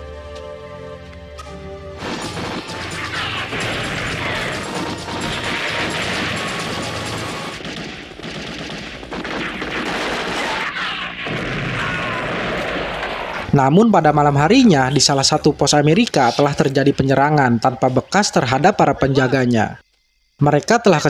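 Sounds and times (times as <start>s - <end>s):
soft background music: 0.0s - 7.6s
rapid gunfire: 2.0s - 13.5s
explosions and crashes: 2.0s - 13.6s.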